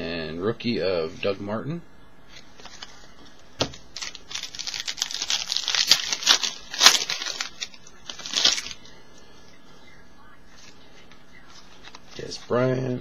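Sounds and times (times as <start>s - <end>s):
wrapper tearing and crinkling: 3.6s - 8.8s.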